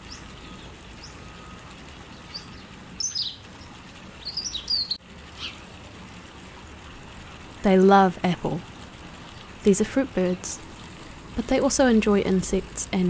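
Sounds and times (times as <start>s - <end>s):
high thin bird calls: 4.2s - 5.6s.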